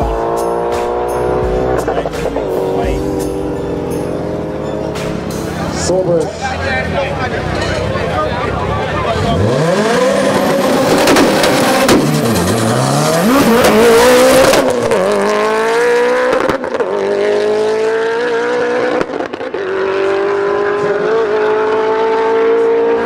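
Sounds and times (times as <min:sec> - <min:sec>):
car engine accelerating hard: 0:00.0 - 0:23.0.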